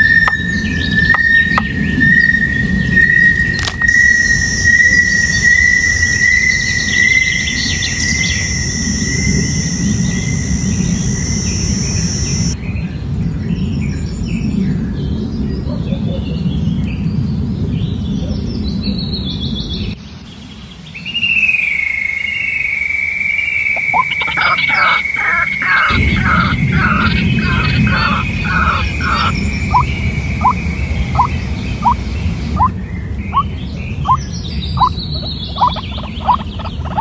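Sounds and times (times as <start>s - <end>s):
long high bird whistle: 0.0s - 12.6s, 20.8s - 32.7s
birds calling and chirping: 0.0s - 17.2s, 23.3s - 37.0s
low rushing background: 23.6s - 37.0s.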